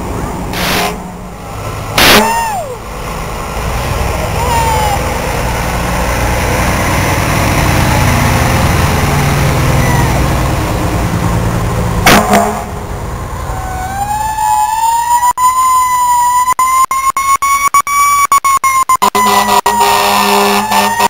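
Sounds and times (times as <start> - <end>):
fire truck engine running: 0.0 - 15.2
very loud horn blast: 0.5 - 1.2, 2.0 - 2.5, 12.0 - 12.8, 19.0 - 21.0
fire truck siren winding up: 13.5 - 21.0.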